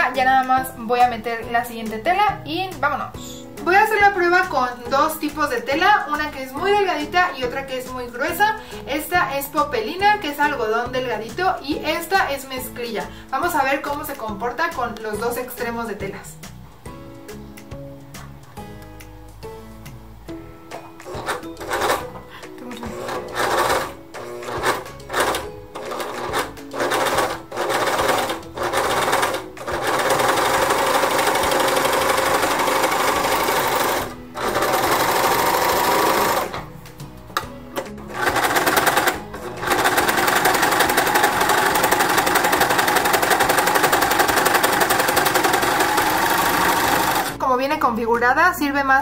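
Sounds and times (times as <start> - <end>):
overlock sewing machine running: 21.1 - 22.0, 23.0 - 36.6, 38.1 - 47.4.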